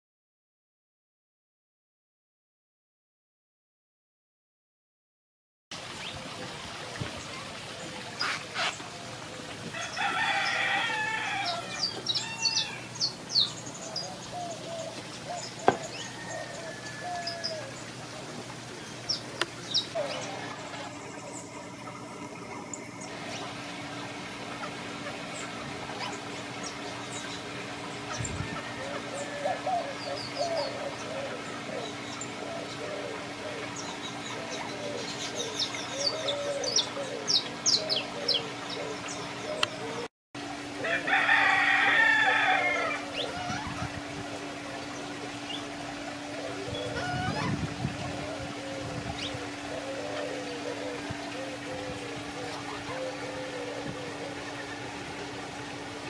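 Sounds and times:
birds chirping: 6.9 - 40.1, 42.5 - 56.0
lower wavering bird calls: 7.2 - 56.0
rooster crowing: 9.7 - 13.0, 15.7 - 17.7, 28.3 - 29.9, 40.8 - 43.6
small birds chirping: 18.8 - 21.7.

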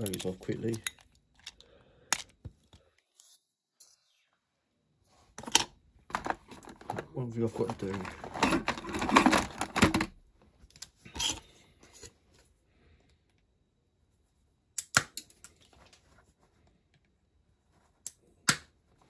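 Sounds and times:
crackling clicks of small parts: 0.0 - 2.8.

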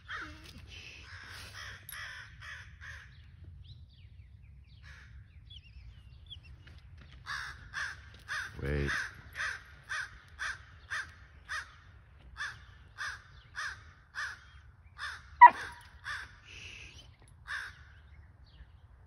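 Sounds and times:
crow cawing: 1.1 - 3.2, 7.2 - 16.4, 17.5 - 18.0.

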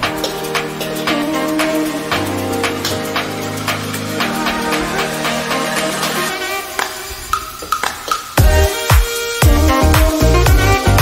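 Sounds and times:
electronic dance music: 0.0 - 11.0
heavy bass drum hits: 8.4 - 8.7.

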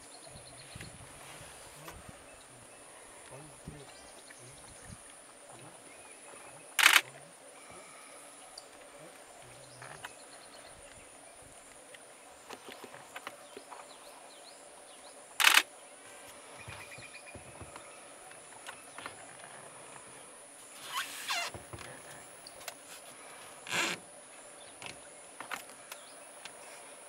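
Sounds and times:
camera shutter clicks: 6.8 - 7.0, 15.4 - 15.7.

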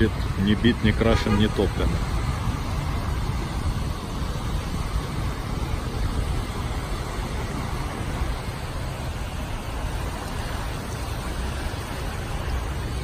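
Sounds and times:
tyres rushing through water: 0.0 - 13.0.

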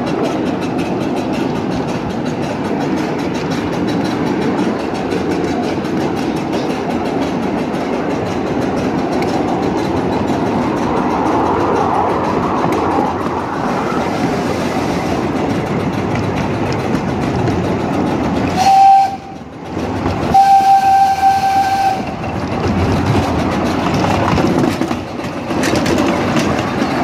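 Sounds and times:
miniature steam locomotive running: 0.0 - 27.0
steam whistle blasts: 18.5 - 19.4, 20.3 - 22.2.

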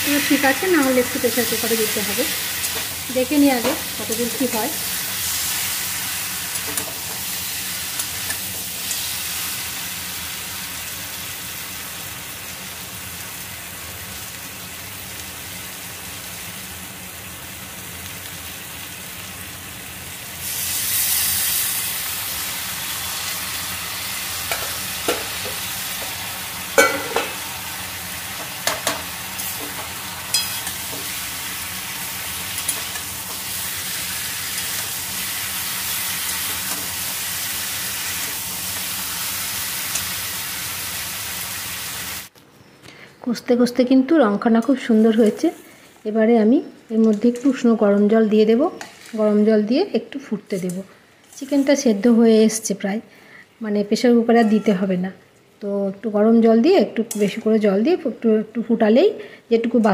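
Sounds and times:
food sizzling in oil: 0.0 - 42.3
metal spatula scraping pan: 28.6 - 31.3, 54.4 - 54.9.

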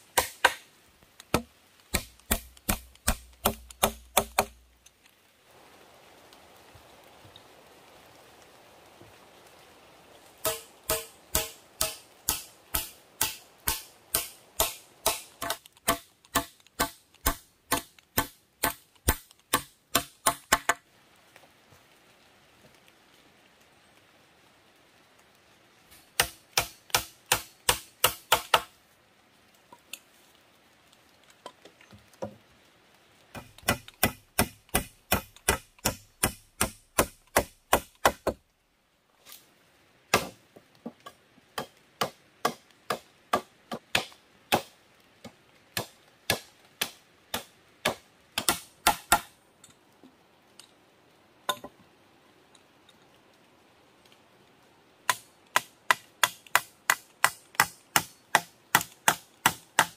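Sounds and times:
hand tool striking wooden poles: 0.0 - 0.6, 1.3 - 4.6, 10.4 - 20.8, 26.2 - 28.7, 33.4 - 38.4, 40.1 - 44.7, 45.8 - 49.3, 55.1 - 59.9.

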